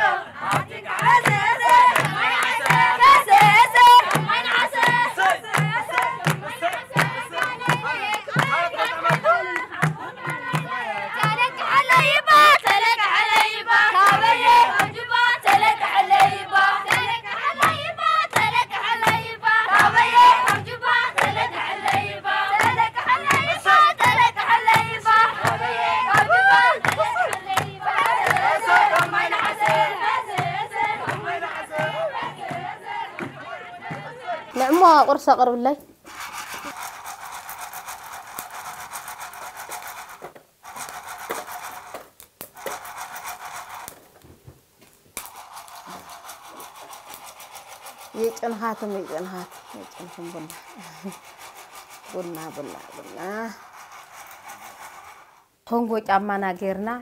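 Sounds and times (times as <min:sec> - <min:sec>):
drum beating steady pulse: 0:00.0 - 0:35.0, 0:36.1 - 0:43.9, 0:45.2 - 0:55.3
women and girls singing: 0:00.0 - 0:35.0
rhythmic rasping strokes: 0:00.0 - 0:35.4, 0:36.0 - 0:44.1, 0:45.2 - 0:55.6.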